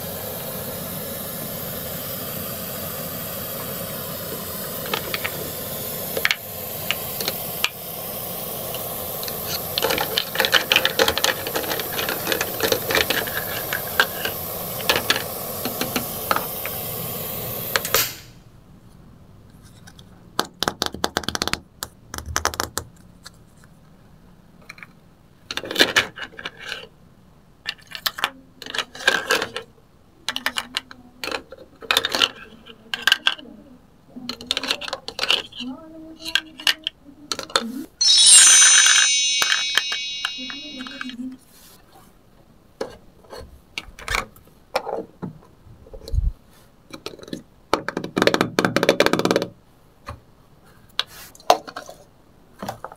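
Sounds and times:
sizzling hiss with crackles: 0.0 - 18.3.

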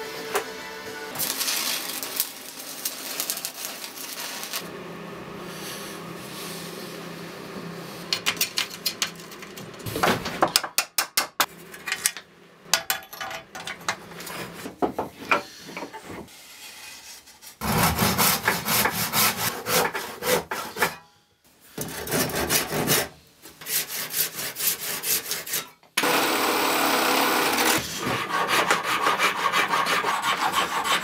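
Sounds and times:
metal tools clinking on workbench: 12.8 - 14.0.

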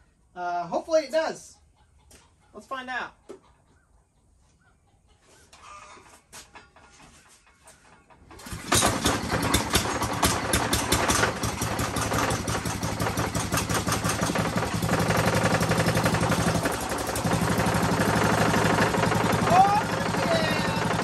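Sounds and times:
small gas engine running: 8.3 - 21.0.

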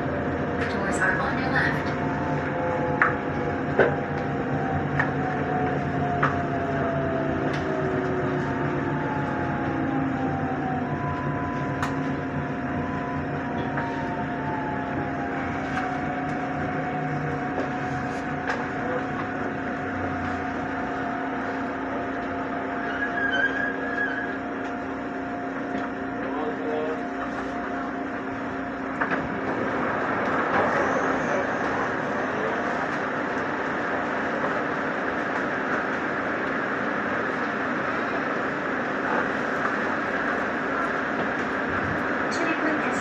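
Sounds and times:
electric train whine: 0.0 - 43.0
standing train carriage rushing noise: 0.0 - 43.0.

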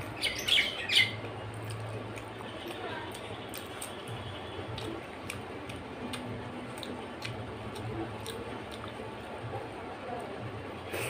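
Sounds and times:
wet chewing smacks: 4.7 - 9.2.

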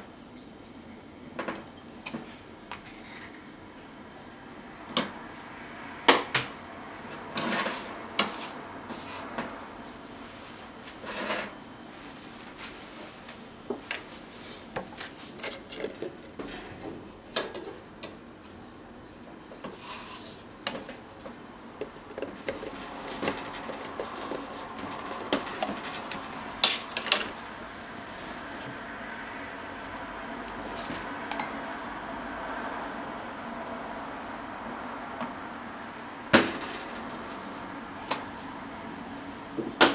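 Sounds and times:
metal spoon scraping plastic cup: 21.8 - 27.0.

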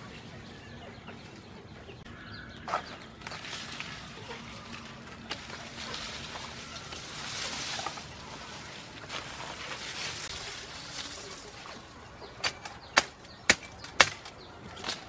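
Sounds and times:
bamboo leaves rustling: 2.6 - 15.0
knife chopping bamboo: 12.4 - 15.0.

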